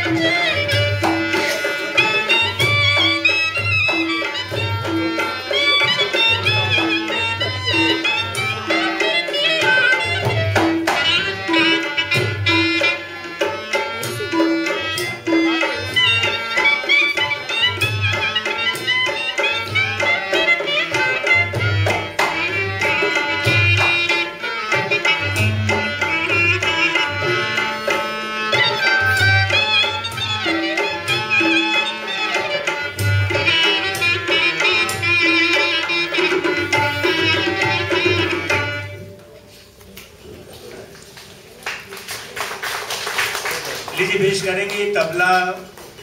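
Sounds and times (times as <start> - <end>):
wavering melodic instrument: 0.0 - 21.7
hand drum beating: 0.0 - 39.1.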